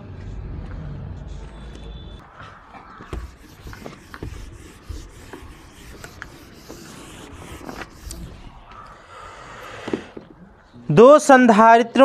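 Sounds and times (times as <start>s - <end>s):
eraser rubbing a whiteboard: 2.9s - 8.5s.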